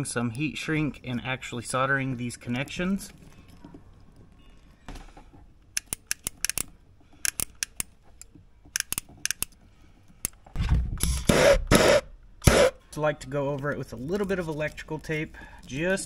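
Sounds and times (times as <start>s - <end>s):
hand tool snipping and clicking: 5.8s - 9.6s
rustling of wiring: 13.3s - 16.0s.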